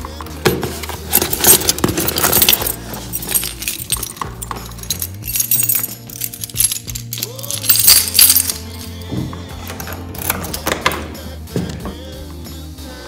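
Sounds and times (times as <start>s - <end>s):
keys jangling at a door lock: 0.8s - 11.0s.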